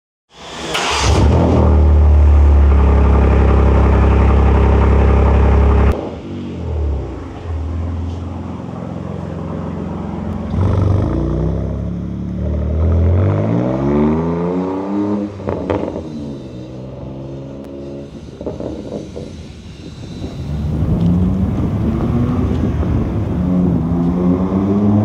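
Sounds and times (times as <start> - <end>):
car engine revving away: 0.4 - 19.2, 20.3 - 25.0.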